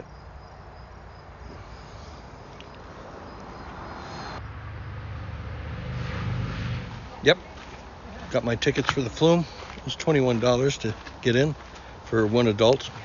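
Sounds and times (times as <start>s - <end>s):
insects trilling: 0.0s - 4.5s
passing traffic rumble: 0.0s - 13.0s
road traffic hiss: 0.0s - 13.0s.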